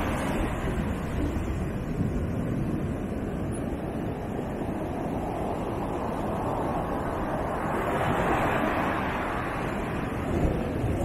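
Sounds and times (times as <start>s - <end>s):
surf breaking on beach: 0.0s - 3.4s, 5.1s - 11.0s
wind rumbling on microphone: 0.0s - 11.0s.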